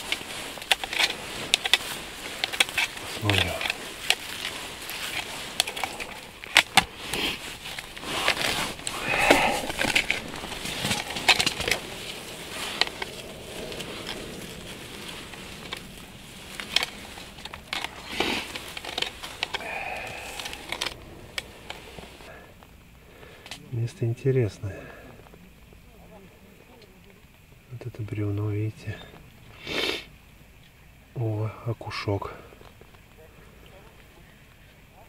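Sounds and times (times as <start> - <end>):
snow and ice crunching: 0.0 - 26.8.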